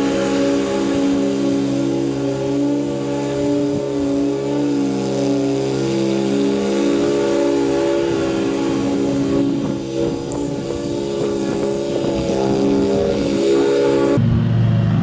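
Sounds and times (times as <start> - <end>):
mower engine humming: 0.0 - 15.0.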